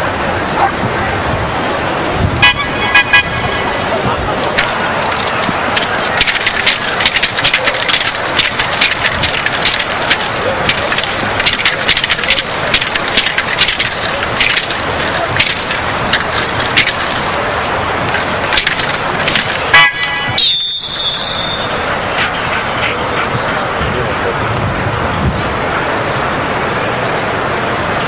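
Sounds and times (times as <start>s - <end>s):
bamboo stick cracking: 4.6s - 17.3s, 18.0s - 19.9s
high steady tone: 19.7s - 22.1s.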